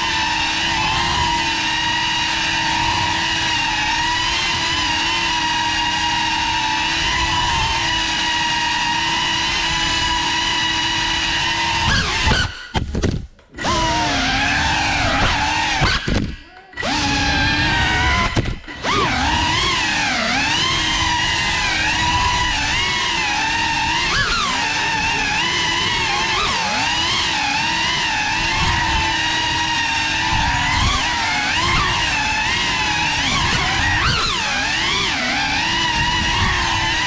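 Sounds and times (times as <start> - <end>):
drone motors whining: 0.0 - 37.0.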